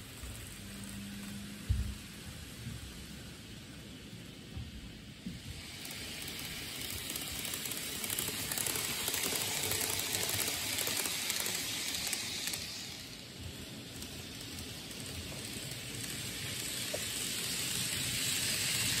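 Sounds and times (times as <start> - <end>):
model train running: 0.0 - 4.5, 5.1 - 19.0
wheels clicking over rail joints: 5.4 - 19.0.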